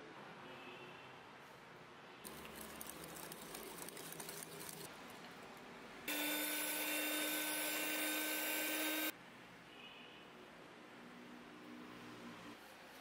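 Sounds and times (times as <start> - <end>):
clicking and swishing of mixing batter: 2.2 - 5.7
electric hand mixer whining: 6.1 - 9.1.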